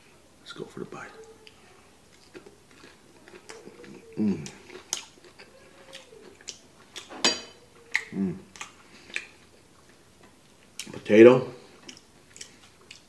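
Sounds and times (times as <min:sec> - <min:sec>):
chewing with mouth clicks: 0:01.4 - 0:07.1, 0:07.8 - 0:11.0, 0:11.6 - 0:13.0.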